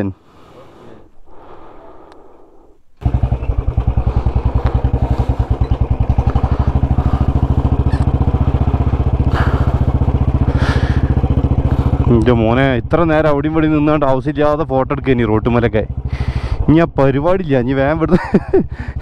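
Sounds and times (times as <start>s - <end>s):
motorcycle engine running: 3.0s - 19.0s.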